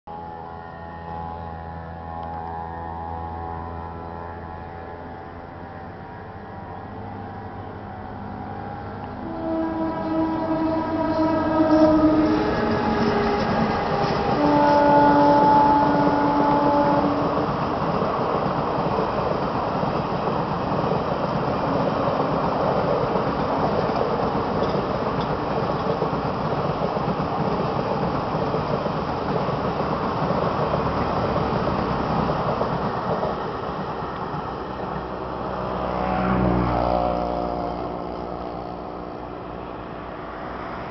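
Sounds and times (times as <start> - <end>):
train horn: 0.1 - 6.0, 8.2 - 17.6, 36.0 - 39.4
vehicle passing with pitched hum: 0.1 - 14.5, 35.0 - 40.9
road traffic noise: 0.1 - 40.9
train coaches rumbling past: 0.1 - 40.9.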